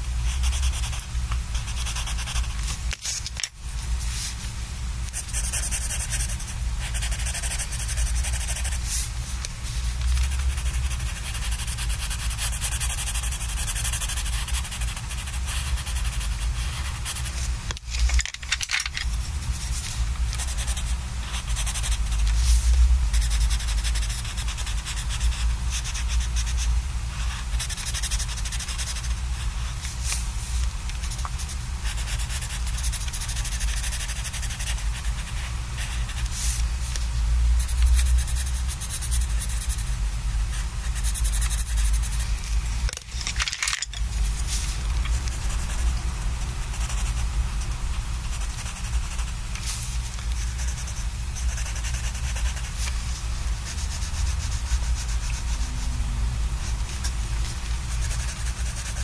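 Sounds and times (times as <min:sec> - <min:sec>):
pencil scratching on paper: 0:00.3 - 0:02.6, 0:05.1 - 0:09.0, 0:10.1 - 0:17.5, 0:20.4 - 0:26.6, 0:31.0 - 0:36.6, 0:37.6 - 0:42.2, 0:48.2 - 0:49.3, 0:50.3 - 0:52.9, 0:53.6 - 0:55.9, 0:57.9 - 0:59.0.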